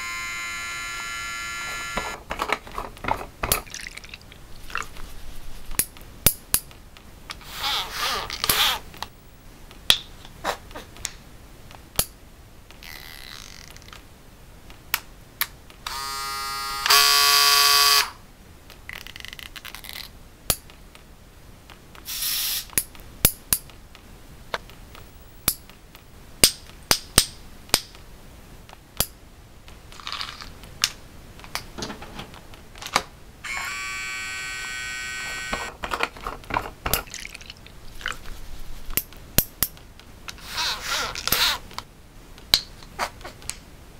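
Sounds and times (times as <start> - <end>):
harsh buzzing tone: 0.0 - 2.2, 15.9 - 18.2, 33.4 - 35.7.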